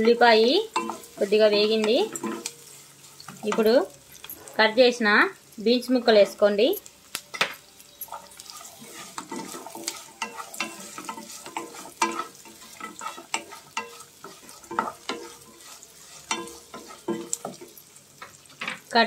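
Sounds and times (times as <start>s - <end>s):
light sizzle of frying: 0.0s - 19.0s
wooden spatula scraping pan: 8.1s - 17.7s.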